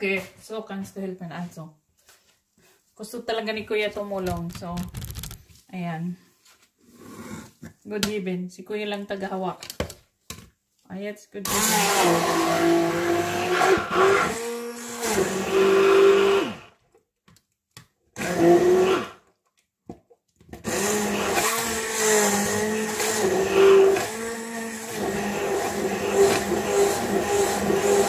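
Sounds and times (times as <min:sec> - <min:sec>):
immersion blender whining: 0:11.5 - 0:16.8, 0:18.2 - 0:19.2, 0:20.6 - 0:28.0.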